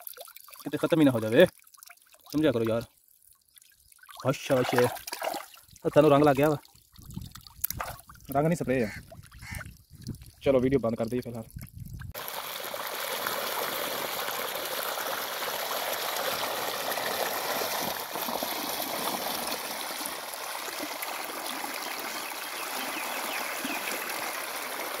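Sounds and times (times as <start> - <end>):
water rushing along a channel: 4.1 - 6.6, 12.2 - 25.0.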